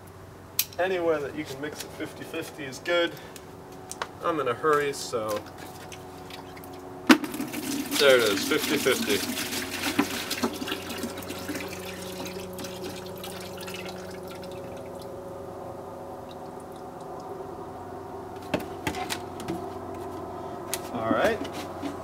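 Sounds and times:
liquid pouring into plastic bucket: 0:07.2 - 0:15.1.

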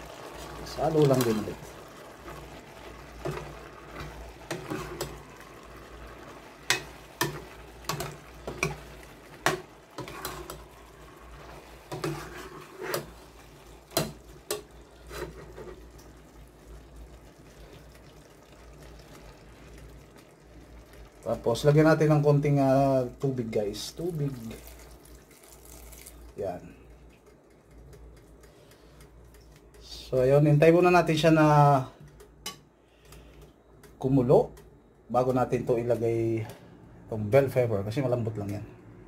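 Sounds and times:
ladle clinking and scraping pot: 0:03.2 - 0:05.2, 0:06.6 - 0:10.8, 0:11.4 - 0:15.8.

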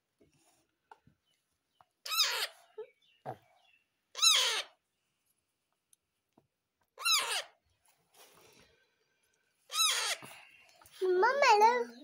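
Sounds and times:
baby parrot calling: 0:02.0 - 0:02.8, 0:04.1 - 0:04.8, 0:07.0 - 0:07.6, 0:09.7 - 0:10.4.

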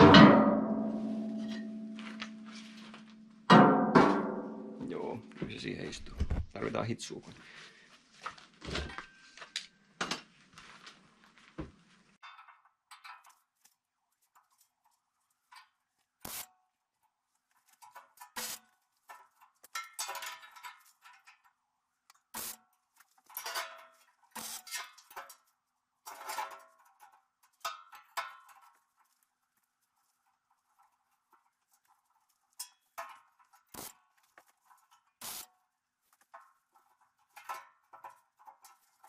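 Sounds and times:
sharp metallic knocks: 0:00.0 - 0:01.7, 0:03.5 - 0:05.0
welder crackling: 0:15.5 - 0:16.5, 0:17.7 - 0:20.1, 0:22.1 - 0:23.5, 0:24.3 - 0:25.3, 0:32.6 - 0:35.6.

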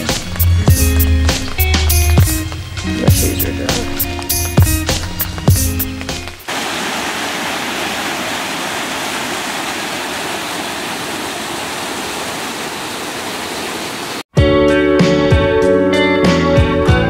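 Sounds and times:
music: 0:00.0 - 0:06.5, 0:14.3 - 0:17.0
creek rushing over rocks: 0:00.0 - 0:14.3.

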